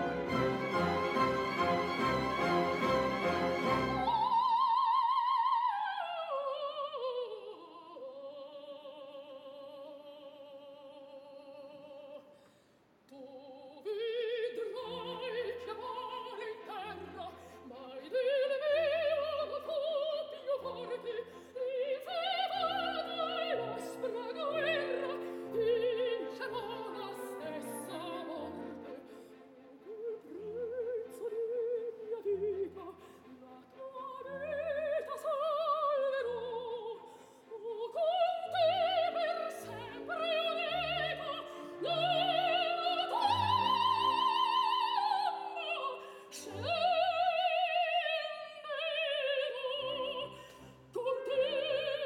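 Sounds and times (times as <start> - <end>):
orchestral accompaniment: 0.0 - 4.5, 22.6 - 32.9
operatic soprano singing: 0.0 - 12.4, 13.1 - 52.0.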